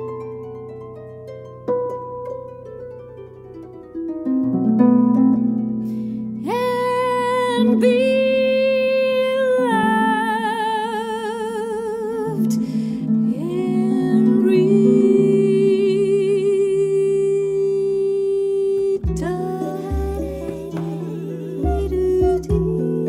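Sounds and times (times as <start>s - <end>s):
harp plucked: 0.0s - 23.0s
woman singing with vibrato: 6.4s - 23.0s.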